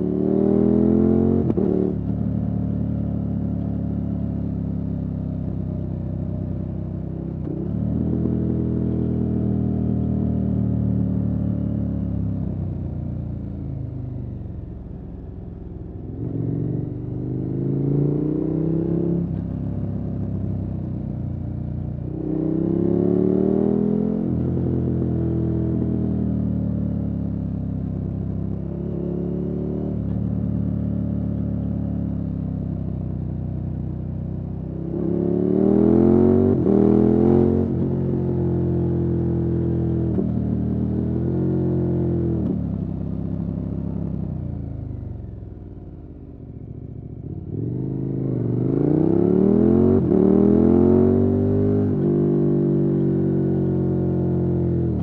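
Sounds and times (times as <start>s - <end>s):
motorcycle engine accelerating: 0.0s - 5.2s, 22.0s - 33.1s, 34.3s - 55.0s.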